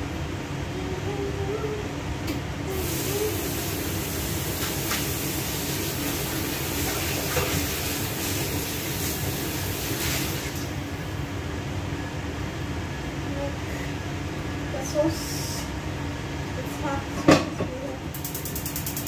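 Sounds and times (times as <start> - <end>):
kitchen fan humming: 0.0 - 19.0
tap water running into sink: 2.8 - 10.6.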